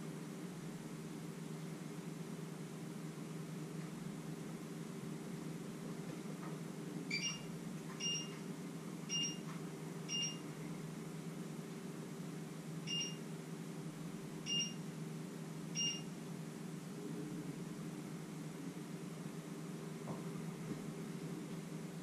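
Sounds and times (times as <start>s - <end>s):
steady low hum: 0.0s - 22.0s
short high electronic beeps: 7.1s - 8.3s, 9.1s - 9.4s, 12.9s - 13.2s, 14.5s - 14.8s, 15.8s - 16.0s.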